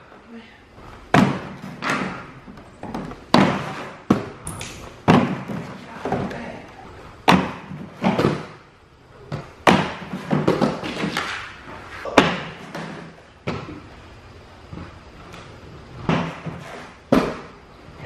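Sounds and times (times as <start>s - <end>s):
skates knocking on wooden box: 1.1s - 4.4s, 5.0s - 6.4s, 9.3s - 11.4s
skates grinding scrape: 3.4s - 4.1s, 16.4s - 17.0s.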